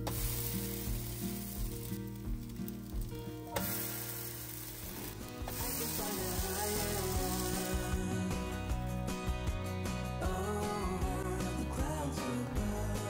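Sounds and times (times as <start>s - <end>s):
pancakes sizzling in oil: 0.0s - 8.0s.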